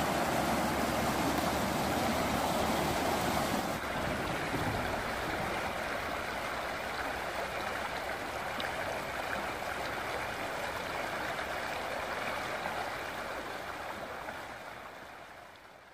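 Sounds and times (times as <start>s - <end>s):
floodwater rushing over rocks: 0.0s - 15.0s.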